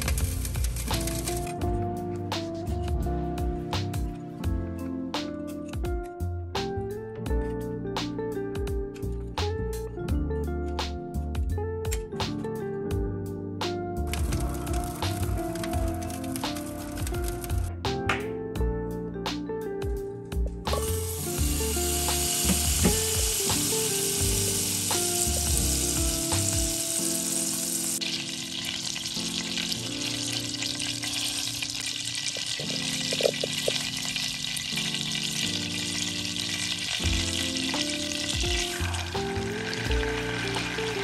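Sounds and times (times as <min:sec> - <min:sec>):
butter sizzling in a saucepan: 0:14.2 - 0:17.4, 0:20.7 - 0:41.0.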